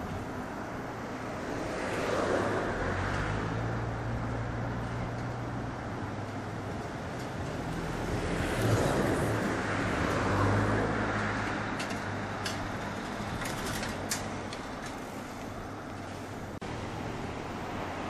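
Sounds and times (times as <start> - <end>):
road noise: 0.0 - 18.0
vehicle engine passing: 1.3 - 12.3.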